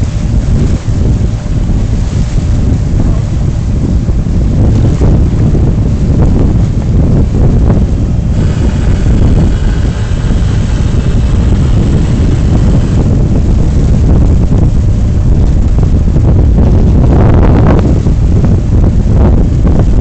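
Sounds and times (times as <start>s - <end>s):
wind buffeting microphone: 0.0s - 20.0s
rushing hiss: 8.3s - 13.1s.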